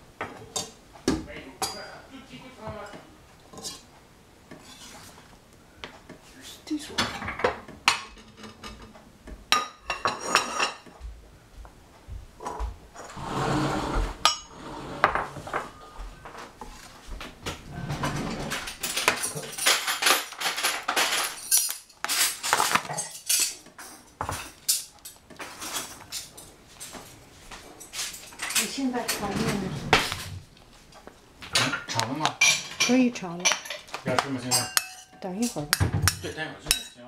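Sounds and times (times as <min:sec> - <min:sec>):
knife scraping: 0:04.5 - 0:05.3.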